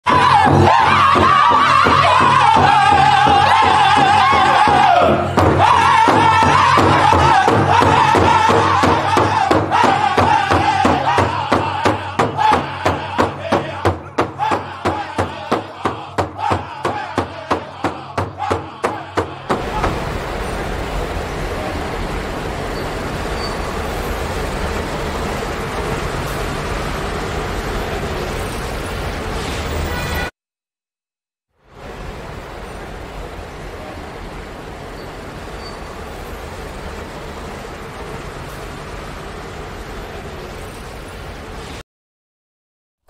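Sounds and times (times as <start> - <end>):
group singing in high voices: 0.0 - 20.3
city traffic hum: 0.0 - 30.3, 31.5 - 41.8
large hand drum beating: 0.5 - 20.0.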